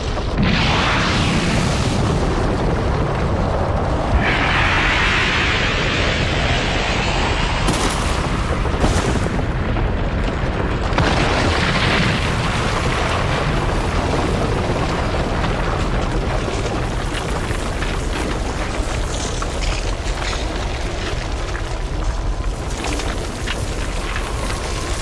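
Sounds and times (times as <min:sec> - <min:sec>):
heavy rumble: 0:00.0 - 0:25.0
booming hits: 0:04.0 - 0:13.3.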